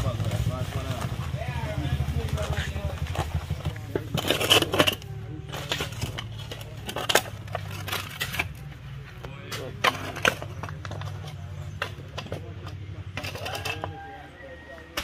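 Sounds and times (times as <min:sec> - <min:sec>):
shovels scraping gravel mix: 0:02.2 - 0:11.7, 0:13.0 - 0:14.2.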